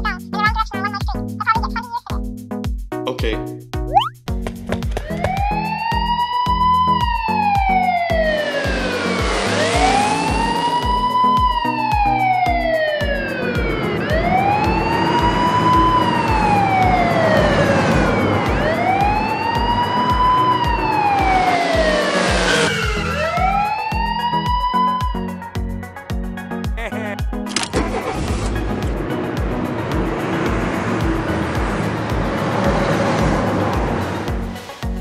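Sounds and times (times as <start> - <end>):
music with steady beat: 0.0 - 27.6, 28.4 - 35.0
police siren wailing: 5.0 - 25.8.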